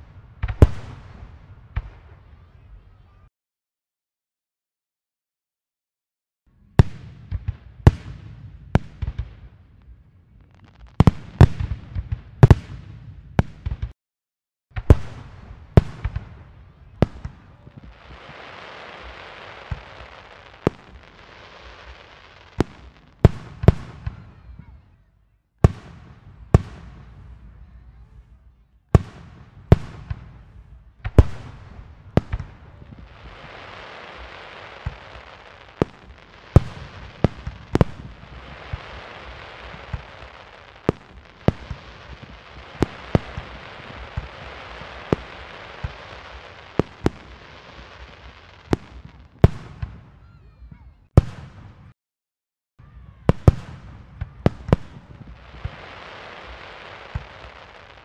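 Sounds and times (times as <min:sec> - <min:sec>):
fireworks bursting: 0:14.8 - 0:24.5, 0:29.0 - 0:50.2, 0:53.2 - 0:58.0.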